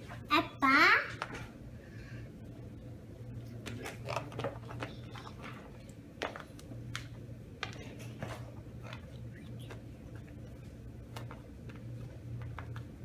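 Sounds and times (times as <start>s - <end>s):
steady low hum: 0.0s - 13.0s
plastic and chocolate pieces tapping: 6.2s - 7.8s.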